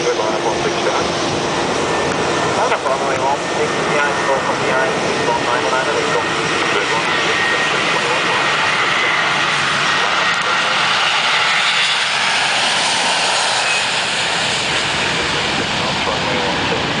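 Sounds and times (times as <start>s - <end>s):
jet engines at take-off: 0.0s - 17.0s.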